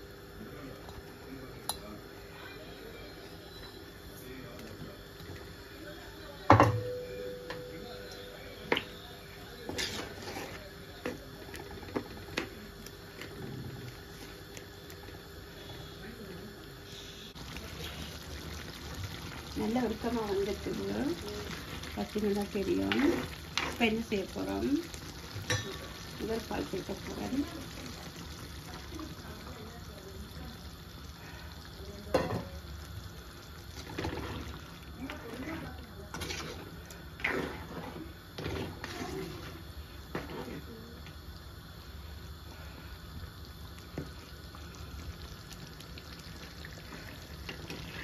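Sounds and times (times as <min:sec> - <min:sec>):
curry sizzling and bubbling: 0:00.0 - 0:48.0
wooden spatula scraping a clay pot: 0:09.7 - 0:10.6, 0:36.1 - 0:40.7.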